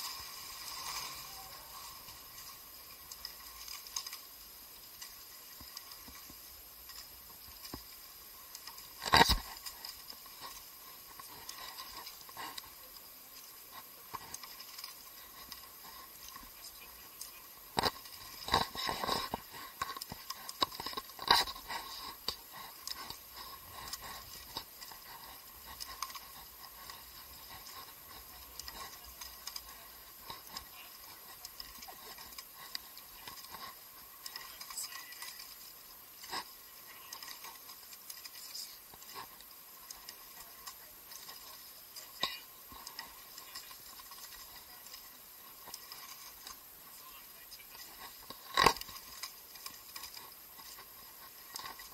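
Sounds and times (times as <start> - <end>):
oars clicking and knocking: 0.0 - 51.9.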